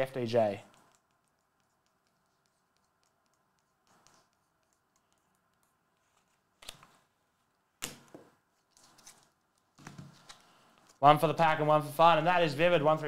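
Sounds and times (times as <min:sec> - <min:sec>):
soft rustle: 0:00.6 - 0:07.6.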